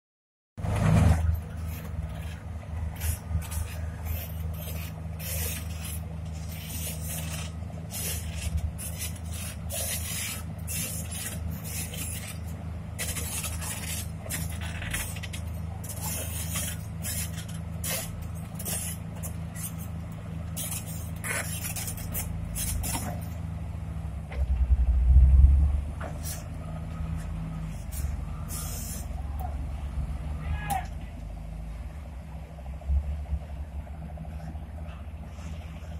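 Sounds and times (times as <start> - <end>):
diesel engines running: 0.6 - 35.9.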